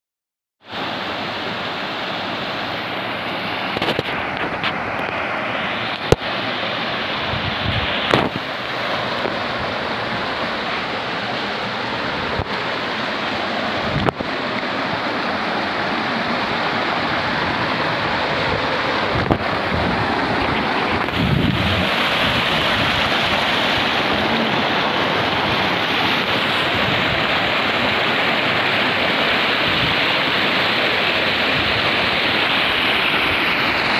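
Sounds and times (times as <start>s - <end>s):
water rushing over rocks: 0.6s - 33.9s.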